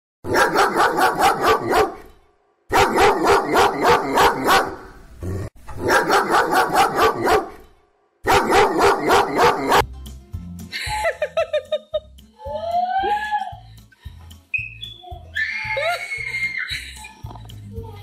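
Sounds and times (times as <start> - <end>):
dog barking: 0.3 - 2.1, 2.7 - 5.0, 5.8 - 7.6, 8.2 - 9.8.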